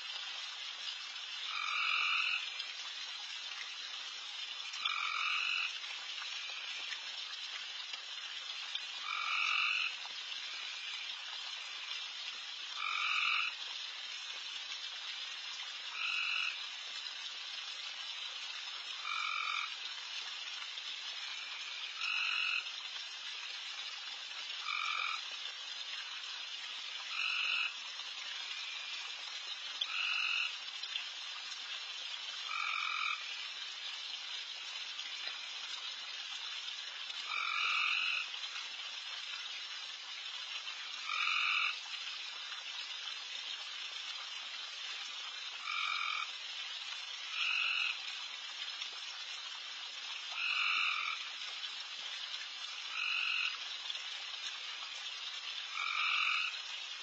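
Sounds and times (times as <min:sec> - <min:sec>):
chorus of frogs calling: 0:01.5 - 0:02.5, 0:04.8 - 0:05.8, 0:09.0 - 0:11.1, 0:12.8 - 0:13.6, 0:15.9 - 0:16.6, 0:19.0 - 0:19.8, 0:21.2 - 0:22.7, 0:24.6 - 0:25.2, 0:27.1 - 0:27.8, 0:29.8 - 0:30.6, 0:32.5 - 0:33.4, 0:37.2 - 0:38.3, 0:41.0 - 0:41.8, 0:45.6 - 0:46.3, 0:47.3 - 0:48.0, 0:50.4 - 0:51.3, 0:52.9 - 0:53.5, 0:55.7 - 0:56.6.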